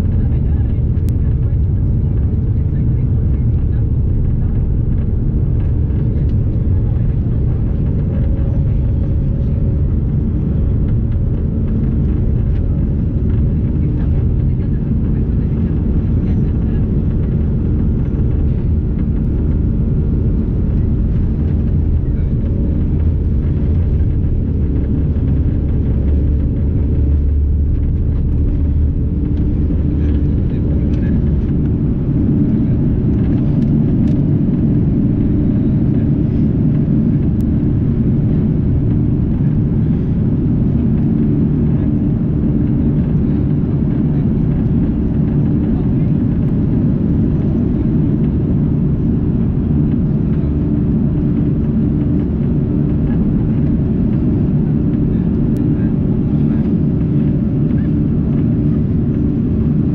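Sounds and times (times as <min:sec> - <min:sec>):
jet engines at takeoff thrust: 0:00.0 - 0:59.9
wheels rumbling on runway: 0:00.0 - 0:59.9.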